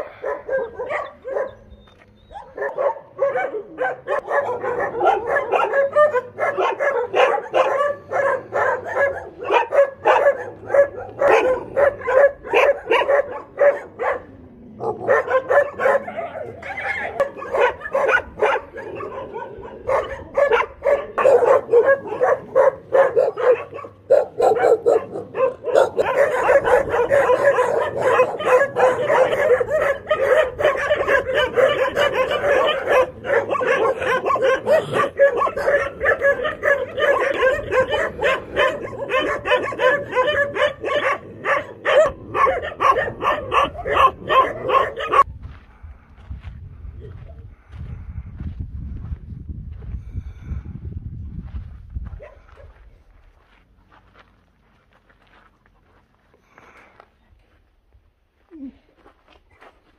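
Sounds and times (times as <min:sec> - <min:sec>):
many dogs barking and yipping: 0:00.0 - 0:45.4, 0:52.1 - 0:53.1.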